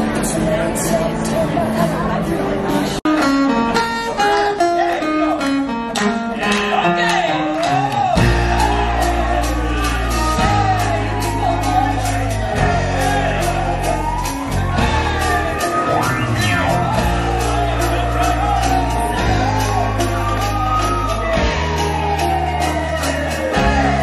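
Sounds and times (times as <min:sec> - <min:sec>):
acoustic guitars: 0:00.0 - 0:24.0
piano: 0:00.0 - 0:24.0
heavy bass: 0:07.8 - 0:24.0
men singing: 0:08.2 - 0:14.2, 0:22.5 - 0:24.0.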